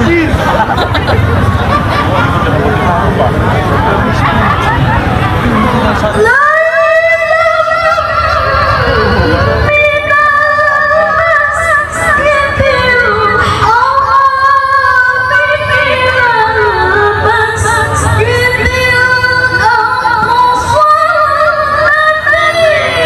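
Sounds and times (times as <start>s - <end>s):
woman reciting melodically: 6.2s - 23.0s.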